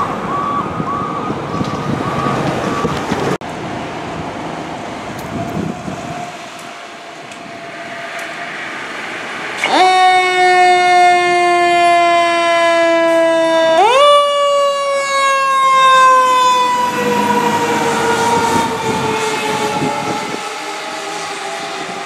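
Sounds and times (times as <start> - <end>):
fire engine siren wailing: 0.0 - 3.3, 4.9 - 22.0.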